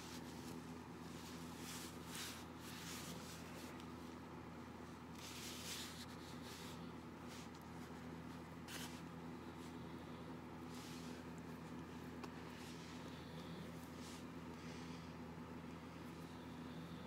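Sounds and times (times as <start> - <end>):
cloth rustling: 0.0 - 4.2, 4.9 - 9.7
faint steady hum: 0.0 - 17.0.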